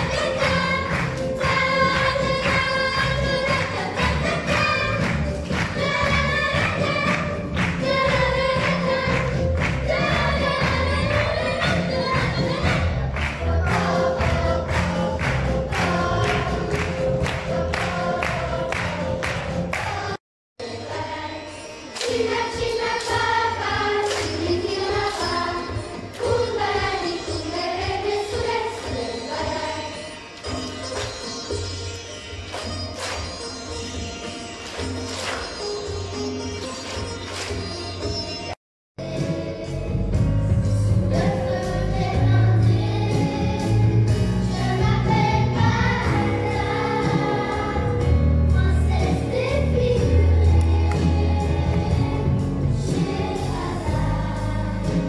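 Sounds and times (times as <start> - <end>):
drum kit beat: 0.0 - 20.2
children's choir singing: 0.0 - 30.6, 41.1 - 55.0.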